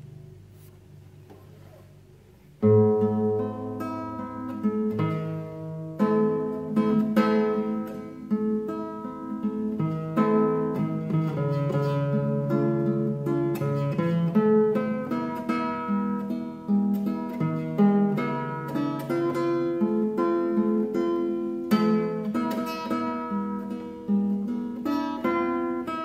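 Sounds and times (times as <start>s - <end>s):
faint low hum: 0.0s - 8.4s
acoustic guitar playing: 0.0s - 26.0s.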